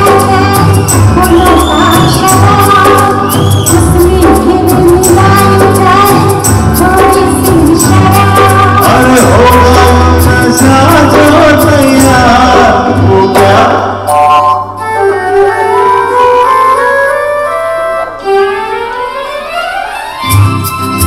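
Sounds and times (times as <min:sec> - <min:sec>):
male and female singers: 0:00.0 - 0:14.1
band playing a steady beat: 0:00.0 - 0:14.8.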